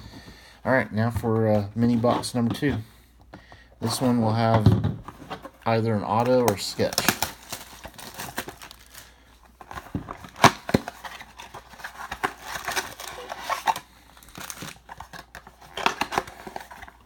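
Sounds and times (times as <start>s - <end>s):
wrapper crinkling and tearing: 6.0s - 17.0s.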